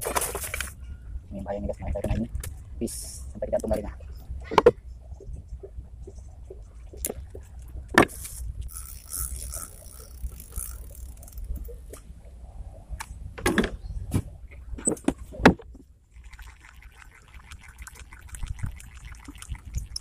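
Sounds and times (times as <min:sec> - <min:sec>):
fishing reel ticking: 0:08.2 - 0:11.7.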